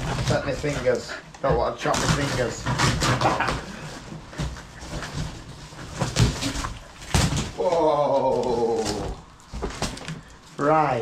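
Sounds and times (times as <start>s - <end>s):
knife sawing through cardboard: 0.0s - 6.4s.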